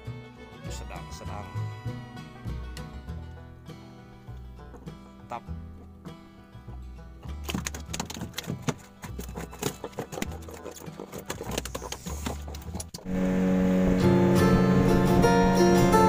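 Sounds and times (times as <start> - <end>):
gentle acoustic guitar music: 0.0 - 16.0
fish flapping against boat hull: 7.3 - 13.1.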